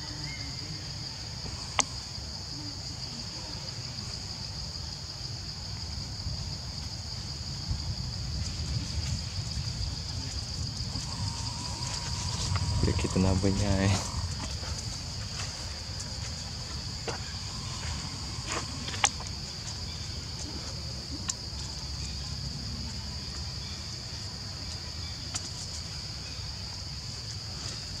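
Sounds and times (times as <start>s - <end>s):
insects droning: 0.0s - 28.0s
low rumble: 7.3s - 20.0s.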